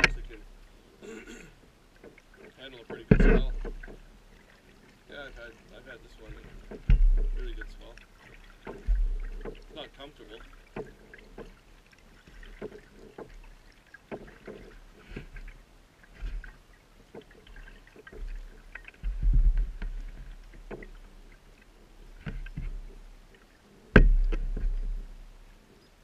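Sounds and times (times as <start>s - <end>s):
paddle clicks: 0.0s - 25.9s
paddle splashing in water: 0.0s - 26.0s
sharp knock: 24.0s - 24.4s.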